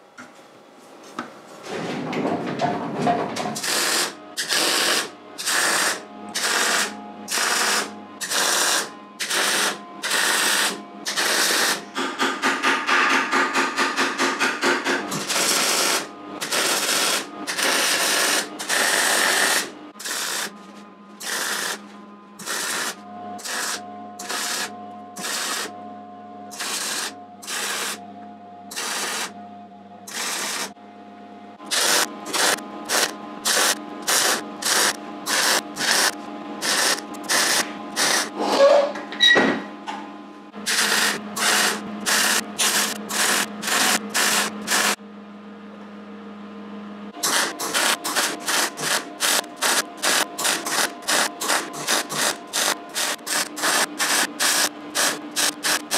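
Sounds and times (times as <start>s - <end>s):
welding arc crackling: 3.6s - 11.8s, 15.2s - 20.5s, 21.2s - 21.8s, 22.4s - 25.7s, 26.5s - 28.0s, 28.7s - 29.3s, 30.1s - 30.7s, 31.7s - 38.3s, 40.6s - 45.0s, 47.2s - 55.9s.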